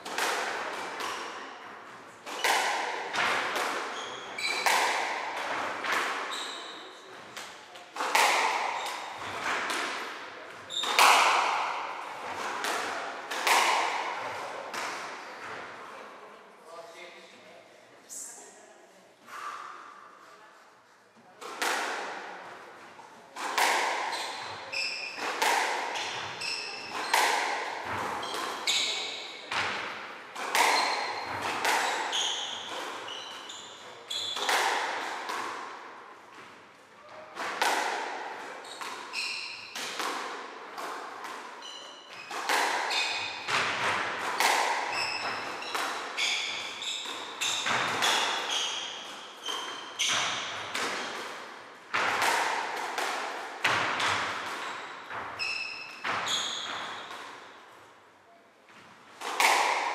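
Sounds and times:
squash ball hitting rackets and walls: 0.0s - 15.8s, 21.3s - 58.0s, 58.7s - 59.9s
shoes squeaking on wooden floor: 44.9s - 50.6s, 54.6s - 57.1s.

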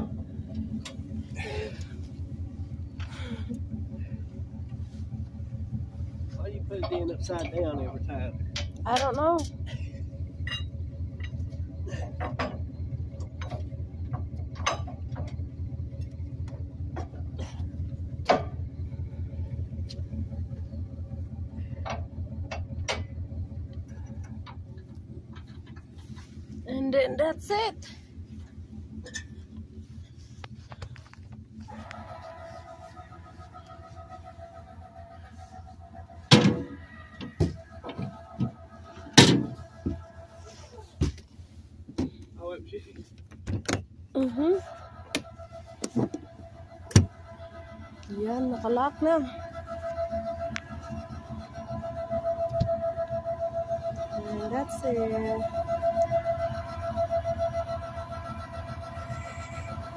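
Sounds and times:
metal hitch bars clanking: 0.0s - 42.4s
vehicle engine idling: 0.0s - 59.9s.

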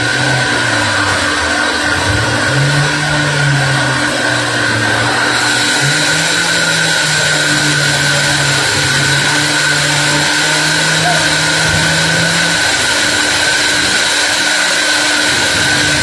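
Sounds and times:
band sawmill sawing log: 0.0s - 16.0s.

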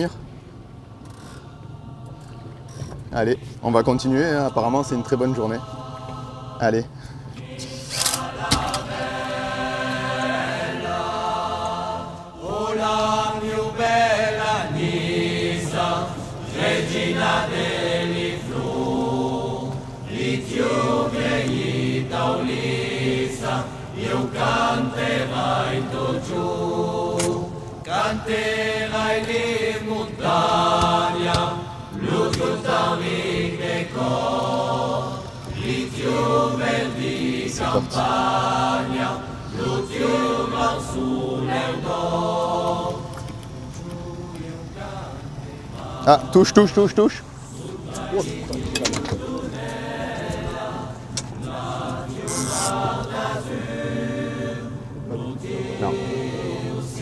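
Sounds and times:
choir singing: 1.2s - 57.0s.

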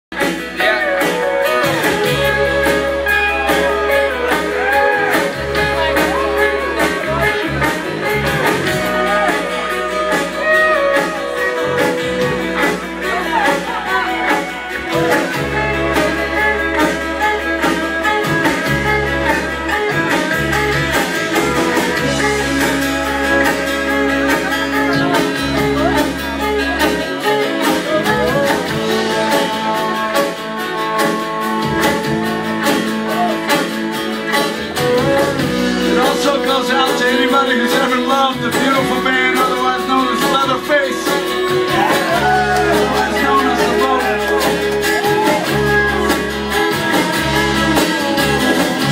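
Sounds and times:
guitars playing: 0.1s - 48.9s
person singing: 34.8s - 48.9s.

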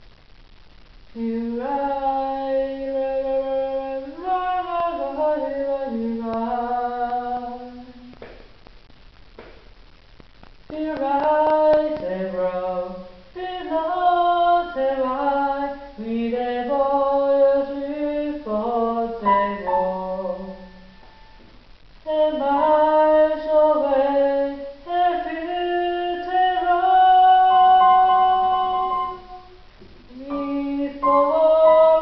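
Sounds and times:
electronic keyboard melody: 27.6s - 29.5s, 30.3s - 32.0s.

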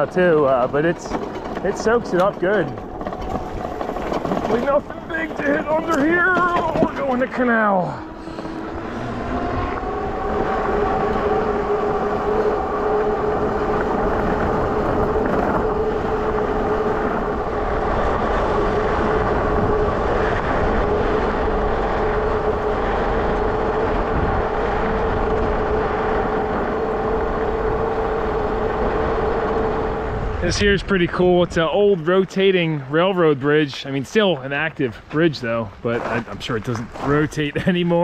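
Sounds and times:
tyre noise: 0.0s - 38.0s
wind rushing: 0.8s - 32.0s
electric bike motor whining: 2.8s - 30.5s.

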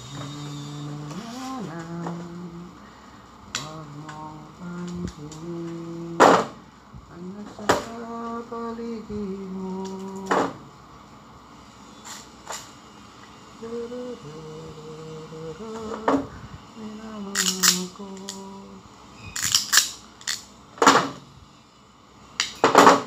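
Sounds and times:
person humming: 0.0s - 2.8s, 3.6s - 6.5s, 7.1s - 10.4s, 13.6s - 18.9s
hand tools clicking: 17.3s - 18.4s, 19.3s - 20.5s.

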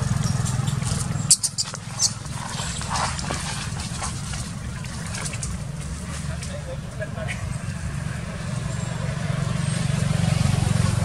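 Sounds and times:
low motor hum: 0.0s - 11.0s
baby monkey squeaking: 0.2s - 4.2s.

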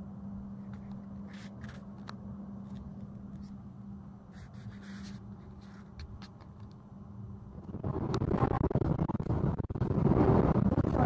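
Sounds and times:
train carriage rumble and hum: 0.0s - 11.0s
soft clicks and scrapes: 4.3s - 6.8s.

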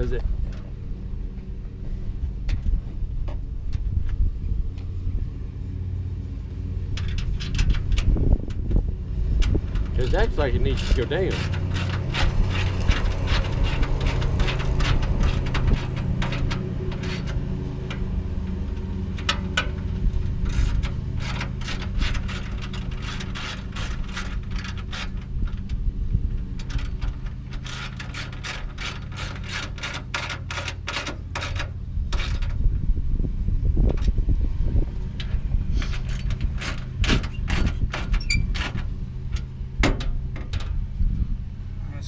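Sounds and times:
steady low rumble: 0.0s - 42.0s
ratchet wrench clicking: 9.4s - 18.0s, 20.4s - 25.7s, 26.6s - 32.5s.

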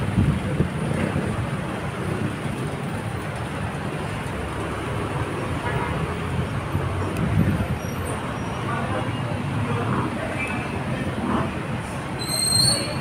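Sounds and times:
traffic engine rumble: 0.0s - 13.0s.

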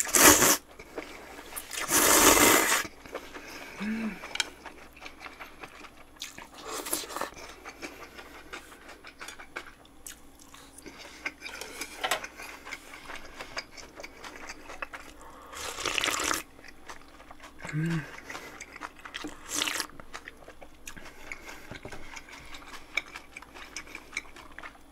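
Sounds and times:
loud slurp: 0.0s - 0.6s, 1.7s - 2.9s
mouth chewing with wet clicks: 4.2s - 24.9s.

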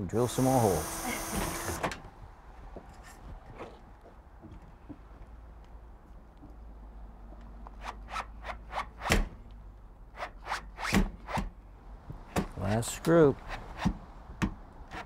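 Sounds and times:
cordless drill boring through metal: 0.2s - 1.9s.

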